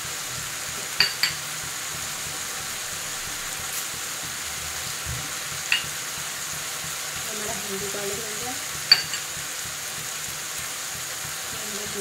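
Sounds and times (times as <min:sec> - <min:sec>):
masala sizzling in a pan: 0:00.0 - 0:12.0
metal clinks: 0:08.9 - 0:09.3.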